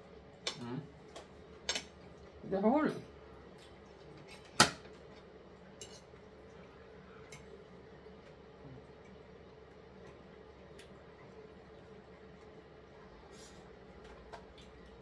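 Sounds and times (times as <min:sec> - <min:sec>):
faint hum: 0:00.0 - 0:15.0
cutlery clinking on plates: 0:05.8 - 0:06.1.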